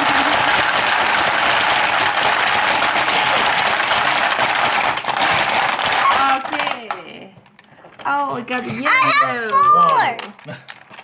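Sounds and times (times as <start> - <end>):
marbles rattling on plastic board: 0.0 - 7.2.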